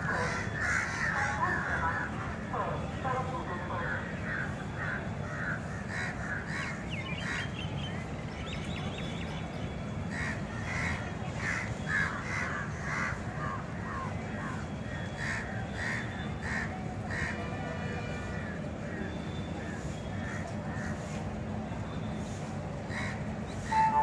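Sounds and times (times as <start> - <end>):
crows cawing: 0.1 - 2.1, 3.8 - 7.4, 10.1 - 13.6, 15.2 - 17.3, 22.9 - 23.2.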